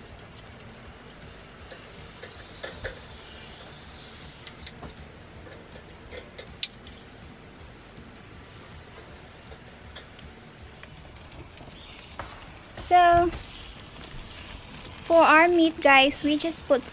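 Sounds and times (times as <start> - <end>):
faint birds chirping: 0.0 - 16.6
metal tongs clicking on grill: 0.2 - 7.3, 8.7 - 11.0.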